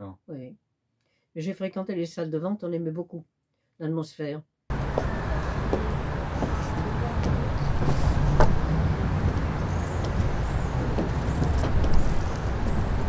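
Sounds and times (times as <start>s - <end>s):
road traffic rumble: 4.7s - 13.0s.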